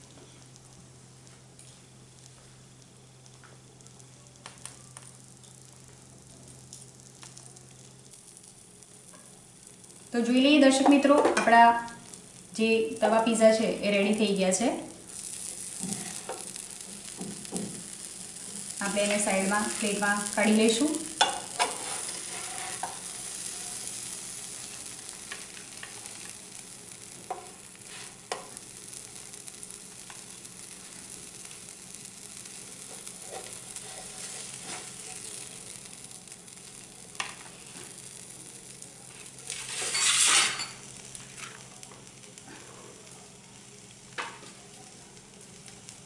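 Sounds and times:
frying hiss in a pan: 0:00.0 - 0:46.0.

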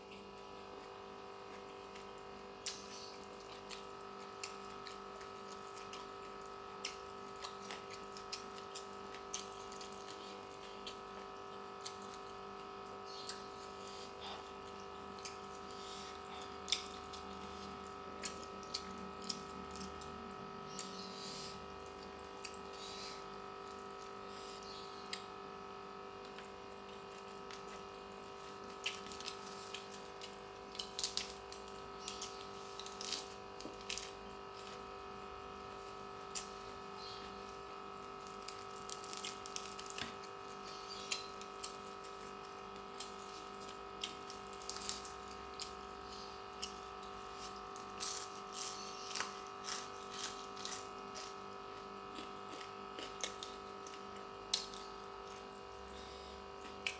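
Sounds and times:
chewing with wet mouth smacks: 0:00.0 - 0:21.0, 0:52.1 - 0:55.4
steady electrical hum: 0:00.0 - 0:56.9.

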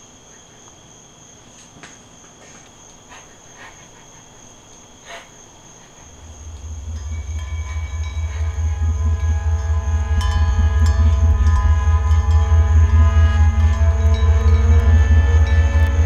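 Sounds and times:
crickets chirping: 0:00.0 - 0:16.0
deep pulsing low drone: 0:06.2 - 0:16.0
sustained musical tones: 0:06.2 - 0:16.0.

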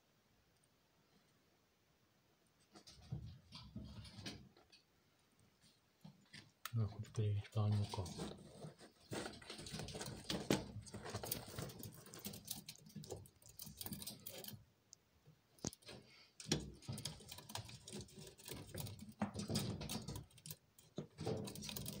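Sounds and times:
claws clicking on metal mesh: 0:09.3 - 0:14.6, 0:15.6 - 0:22.0.

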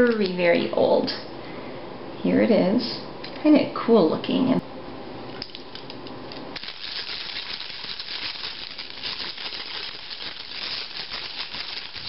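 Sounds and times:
hand-crank egg beater rattling: 0:06.6 - 0:12.0.

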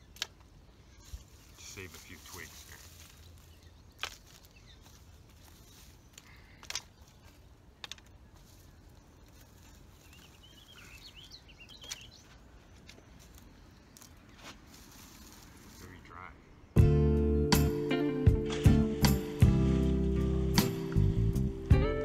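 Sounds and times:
twigs snapping: 0:00.0 - 0:00.6, 0:01.2 - 0:15.8
bird chirping faintly: 0:00.0 - 0:17.5.

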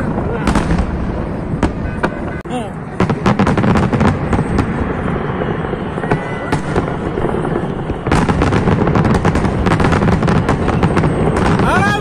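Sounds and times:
firework crackling: 0:00.0 - 0:12.0.

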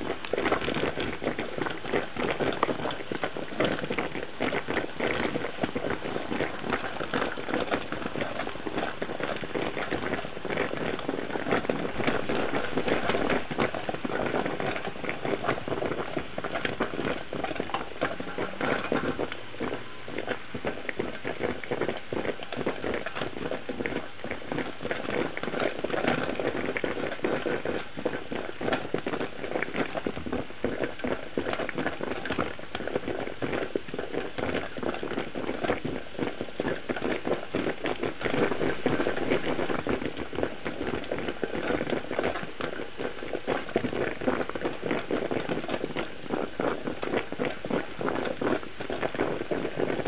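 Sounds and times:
coffee percolator perking: 0:00.0 - 0:30.1.

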